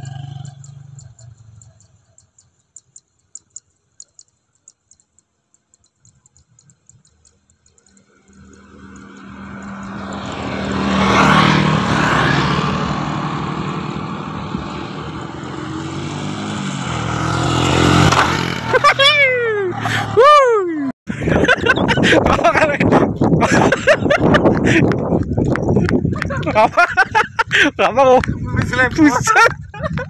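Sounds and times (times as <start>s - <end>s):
scooter and motorcycle engines passing: 0.0s - 1.9s, 7.8s - 20.2s
faint ticks: 0.0s - 10.3s.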